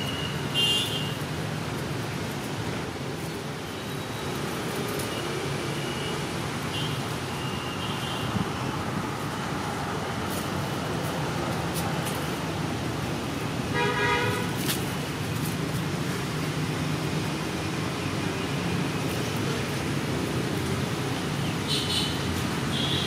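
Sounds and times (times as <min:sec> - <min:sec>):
traffic noise: 0:00.0 - 0:23.0
car horn toot: 0:13.7 - 0:14.5.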